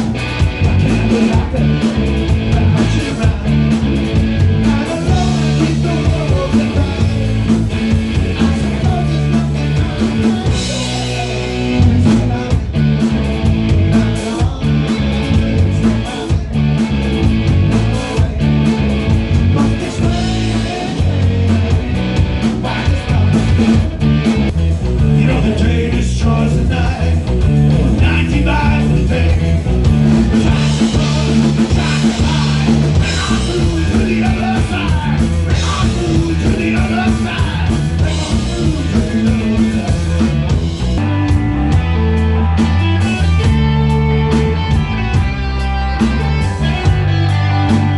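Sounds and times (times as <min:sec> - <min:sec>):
man singing: 0:00.0 - 0:41.0, 0:43.0 - 0:47.9
bass guitar: 0:00.0 - 0:47.9
drum kit: 0:00.0 - 0:47.9
electric guitar: 0:00.0 - 0:47.9.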